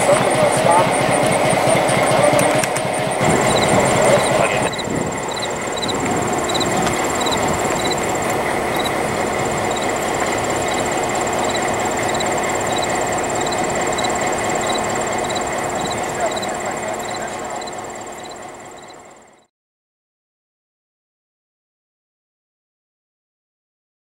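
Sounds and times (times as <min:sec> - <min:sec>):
diesel locomotive idling: 0:00.0 - 0:19.5
faint high chirp: 0:03.5 - 0:08.1, 0:10.7 - 0:19.0.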